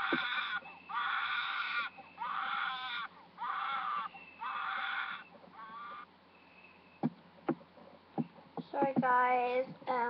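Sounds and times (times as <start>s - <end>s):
high-pitched wailing cries: 0.0s - 6.1s.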